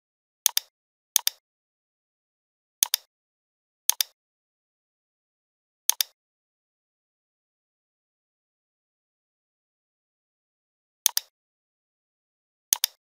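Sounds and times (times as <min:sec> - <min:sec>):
computer mouse button clicks: 0:00.5 - 0:01.4, 0:02.8 - 0:03.1, 0:03.9 - 0:04.2, 0:05.9 - 0:06.2, 0:11.1 - 0:11.3, 0:12.7 - 0:13.0.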